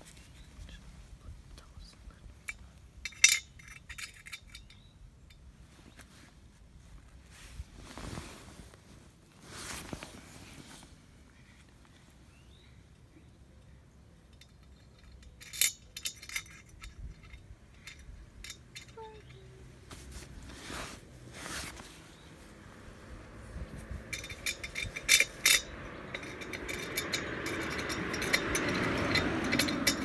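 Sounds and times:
rushing handling noise: 23.8 - 30.0
metallic clinks on a bell: 24.1 - 30.0.

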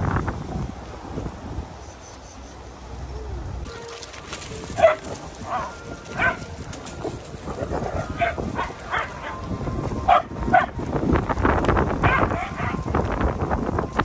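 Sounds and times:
dogs barking: 4.5 - 9.5, 10.1 - 10.8, 12.0 - 12.8.

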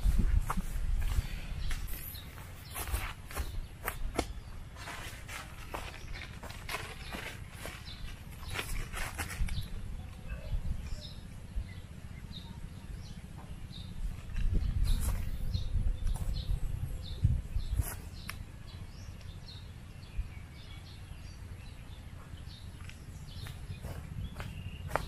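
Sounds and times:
wind rumbling on microphone: 0.0 - 12.4, 13.0 - 19.2
bird chirping: 1.0 - 25.0.

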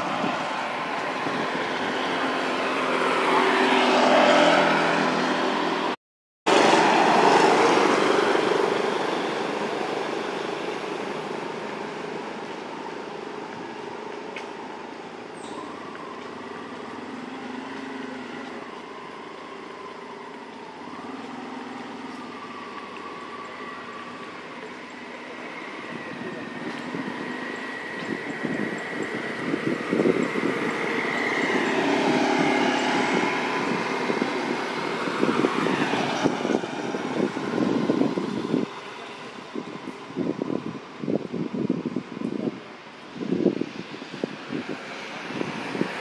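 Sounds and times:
vehicle passing by: 0.0 - 12.8, 15.9 - 39.8
traffic hum: 0.0 - 46.0.

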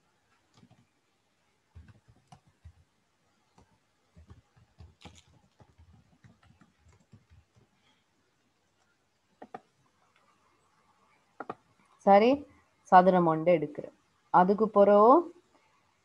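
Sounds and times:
computer mouse clicks: 0.5 - 0.9, 1.8 - 2.8, 3.5 - 7.7, 9.4 - 10.3, 11.4 - 11.6.

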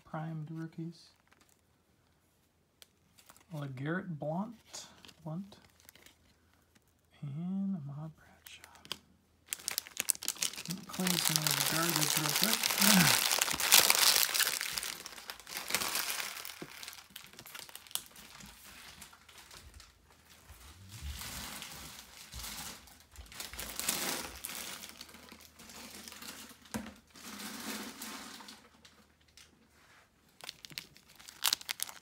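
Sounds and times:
wrappers crinkling: 1.1 - 2.2, 2.8 - 3.7, 4.9 - 7.0, 8.4 - 29.5, 30.3 - 32.0.

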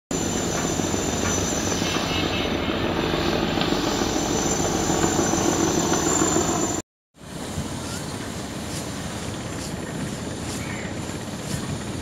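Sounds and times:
thin high whine: 0.1 - 6.8
boat diesel engines droning: 0.1 - 12.0
water rushing along hull: 0.2 - 12.0.

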